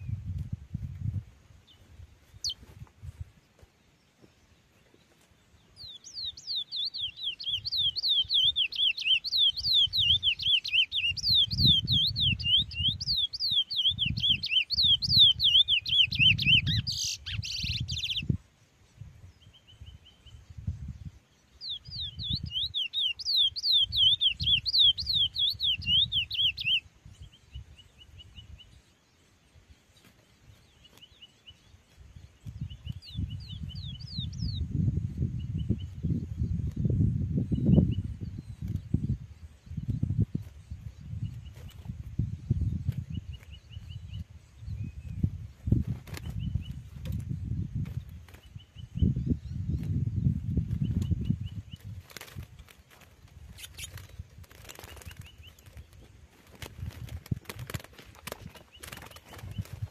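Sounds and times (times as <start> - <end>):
finch singing whistled notes: 5.6 - 18.4, 19.3 - 29.0, 30.0 - 45.4.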